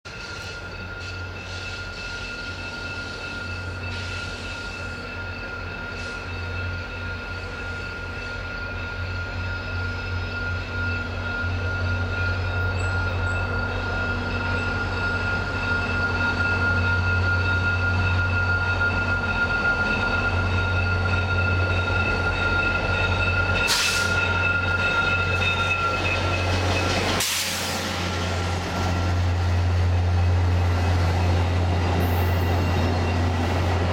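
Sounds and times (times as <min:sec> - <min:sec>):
high-pitched ringing: 0:00.1 - 0:27.2
diesel locomotive engine hum: 0:00.1 - 0:33.9
train coaches rolling by: 0:00.1 - 0:33.9.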